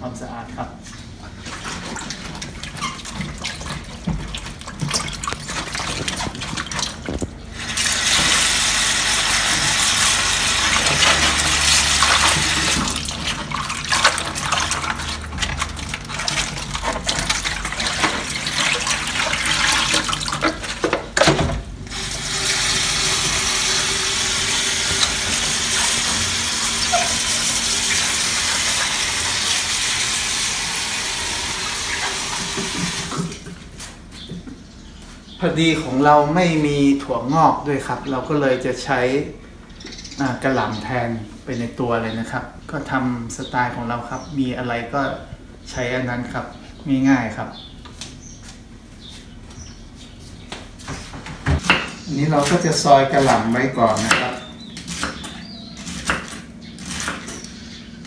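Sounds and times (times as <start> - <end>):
leaves and bowl rustling: 1.5 - 21.1
tap running into sink: 31.4 - 33.6.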